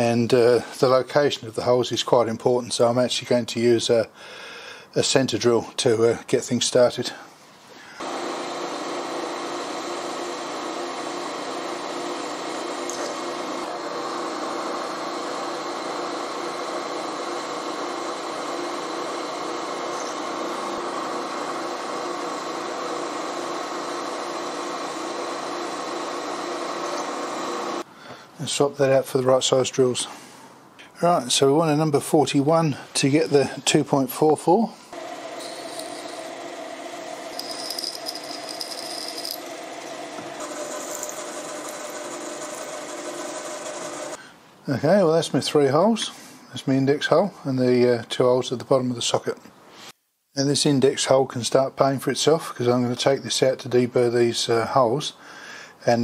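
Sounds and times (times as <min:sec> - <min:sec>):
drill cutting steel: 0:08.0 - 0:27.8, 0:35.0 - 0:44.2
milling machine spindle running: 0:08.0 - 0:27.8, 0:35.0 - 0:44.2
drill cutting squeal: 0:19.9 - 0:20.3, 0:26.8 - 0:27.2, 0:35.1 - 0:36.4, 0:37.1 - 0:44.2.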